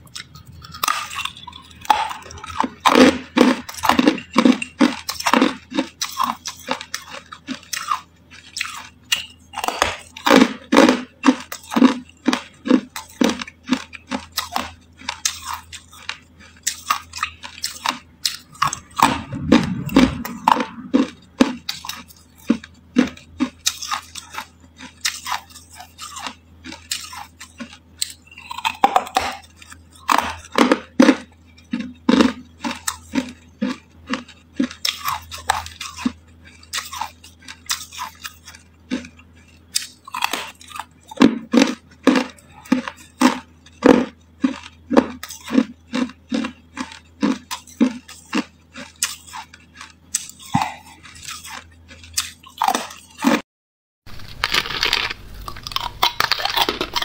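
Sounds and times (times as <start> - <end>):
crunching and chewing ice: 0.0 - 53.4, 54.1 - 57.0.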